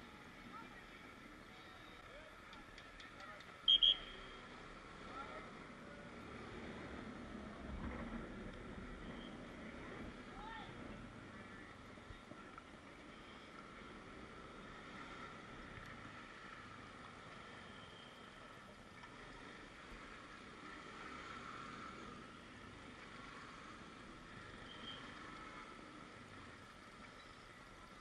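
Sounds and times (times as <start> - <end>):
city background hiss and rumble: 0.0 - 28.0.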